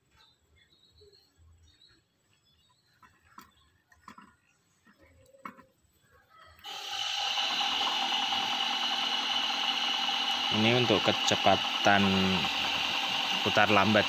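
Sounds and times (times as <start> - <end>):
blower whining with rushing air: 6.6 - 14.0.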